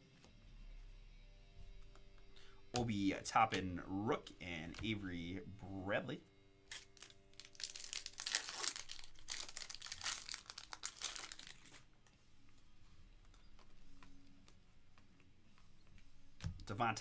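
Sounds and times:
faint handling of cards: 1.6 - 5.9, 6.7 - 17.0
foil wrapper crinkling and tearing: 6.7 - 11.9.

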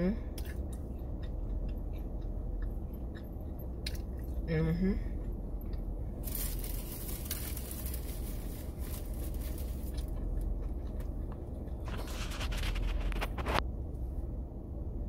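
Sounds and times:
low hum: 0.0 - 15.0
crunchy chewing: 0.3 - 4.5, 5.1 - 13.6
skin rubbing on microphone: 11.8 - 13.6.

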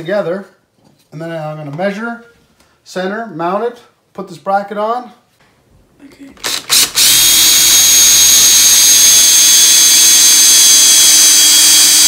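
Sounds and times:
cordless drill motor whining: 6.4 - 12.0.

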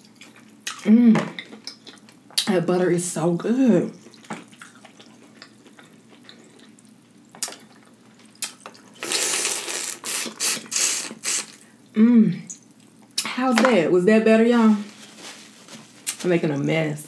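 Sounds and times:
loud wet slurping: 9.0 - 11.6.

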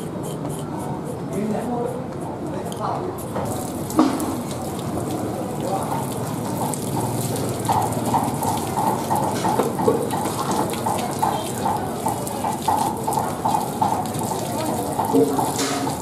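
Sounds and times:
water gushing from a hose: 3.3 - 16.0
water splashing into a basin: 3.4 - 16.0.

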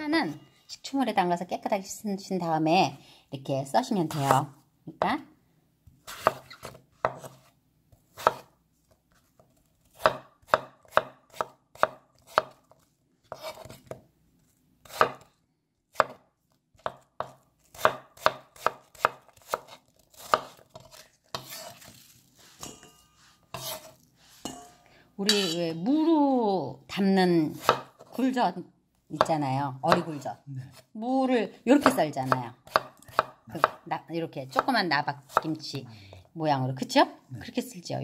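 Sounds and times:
knife scraping board: 6.0 - 7.5, 8.1 - 8.5, 12.2 - 14.0, 18.6 - 24.7
knife chopping on wooden board: 6.1 - 7.4, 8.1 - 8.5, 9.9 - 14.0, 14.8 - 15.3, 15.9 - 16.2, 16.8 - 21.8, 27.6 - 28.1, 31.8 - 33.8.

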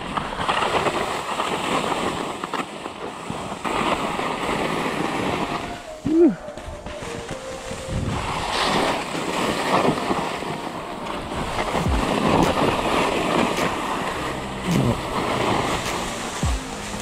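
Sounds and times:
skis scraping on snow: 0.0 - 17.0
wind buffeting microphone: 3.2 - 10.6.

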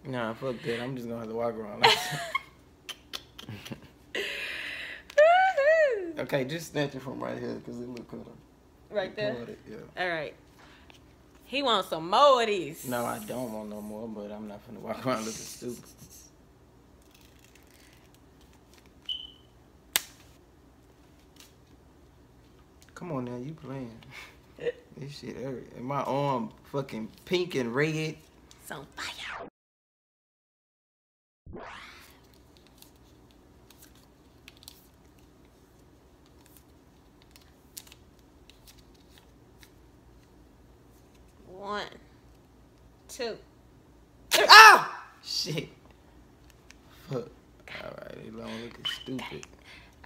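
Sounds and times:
wax strip clicks and crinkles: 32.4 - 40.4.

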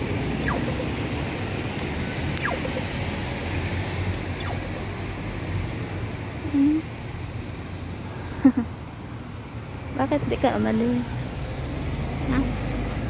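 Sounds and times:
city traffic rumble: 0.0 - 13.0
birds whistling: 0.4 - 0.9, 4.3 - 4.9.

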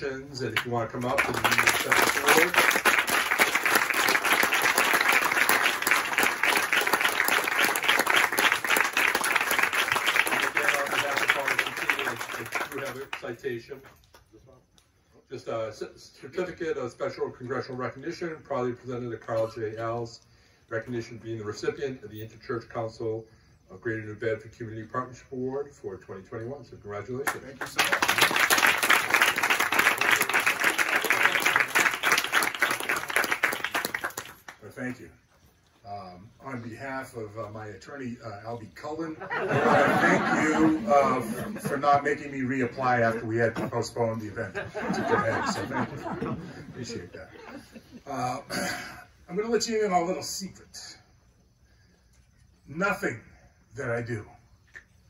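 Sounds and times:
audience applauding: 0.6 - 13.3, 27.3 - 34.6.

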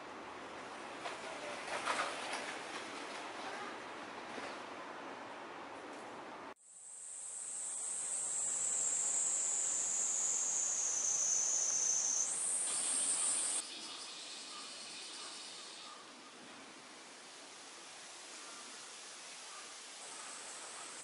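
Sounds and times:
faint insect drone: 6.5 - 21.0
cicadas singing: 6.6 - 21.0.

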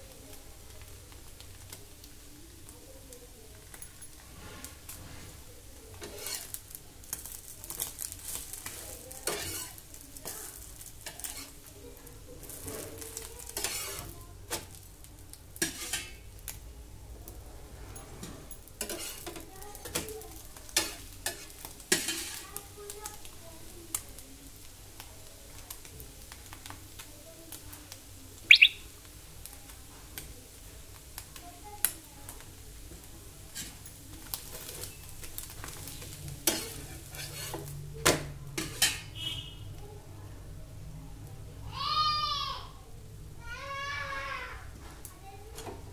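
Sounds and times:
food sizzling on a pan: 0.0 - 45.9
metal spatula scraping pan: 6.0 - 6.6, 8.6 - 9.8, 11.0 - 11.6, 13.6 - 14.1, 15.6 - 16.2, 18.8 - 20.0, 20.8 - 22.4, 33.5 - 33.8, 36.0 - 37.7, 38.6 - 39.2.

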